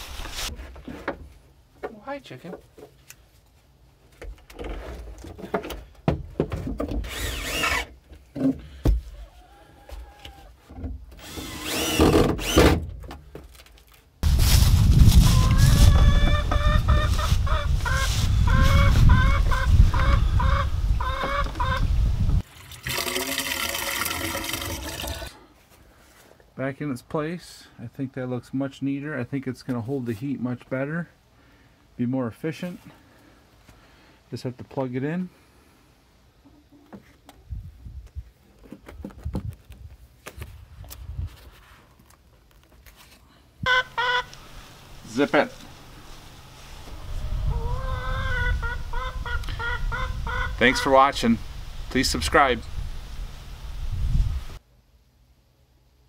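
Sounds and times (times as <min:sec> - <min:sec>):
chickens clucking: 0:15.3 - 0:22.4, 0:43.6 - 0:45.5, 0:46.7 - 0:51.1
water pouring into pipe: 0:22.4 - 0:25.4.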